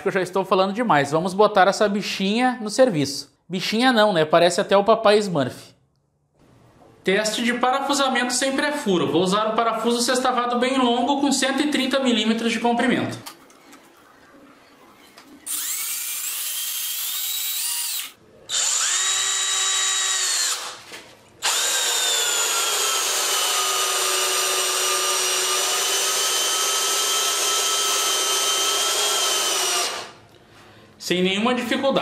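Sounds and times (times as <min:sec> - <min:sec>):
cordless drill whining: 0:15.5 - 0:30.2.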